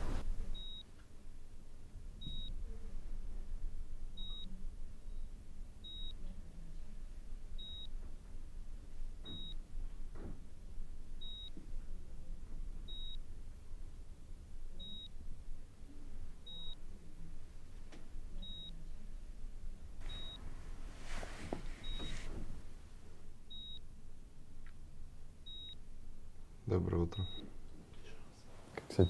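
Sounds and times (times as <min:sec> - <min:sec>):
low room hum: 0:00.0 - 0:29.0
patient monitor beeping: 0:00.5 - 0:00.9, 0:02.2 - 0:02.6, 0:04.2 - 0:06.4, 0:07.6 - 0:08.1, 0:09.2 - 0:09.7, 0:11.2 - 0:11.6, 0:12.8 - 0:13.3, 0:14.8 - 0:15.2, 0:16.4 - 0:17.0, 0:18.4 - 0:18.9, 0:20.0 - 0:20.5, 0:21.8 - 0:22.6, 0:23.5 - 0:23.8, 0:25.4 - 0:25.8, 0:27.0 - 0:27.6.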